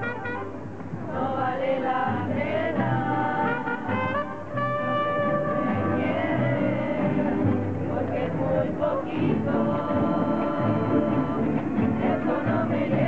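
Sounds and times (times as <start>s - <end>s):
trumpets: 0.0s - 0.8s, 3.2s - 6.3s
violins: 0.0s - 13.0s
strummed guitars: 2.0s - 13.0s.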